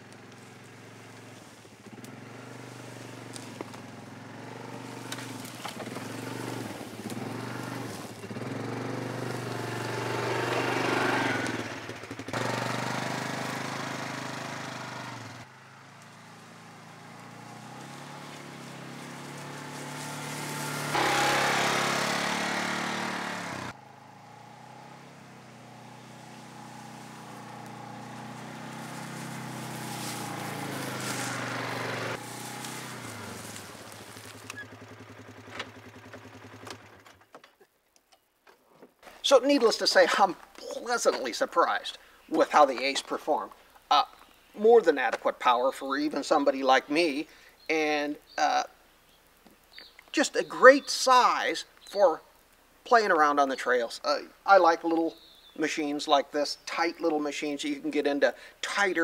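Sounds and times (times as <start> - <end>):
off-road vehicle engine running: 0.0 - 37.3.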